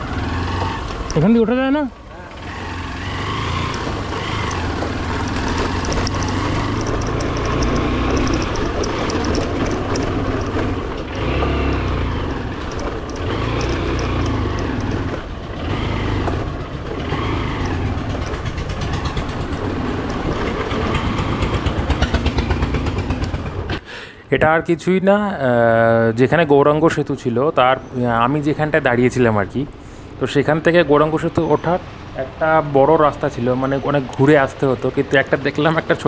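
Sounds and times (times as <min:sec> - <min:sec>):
motorcycle engine revving: 0:00.0 - 0:23.8
clatter and knocks: 0:03.6 - 0:23.8.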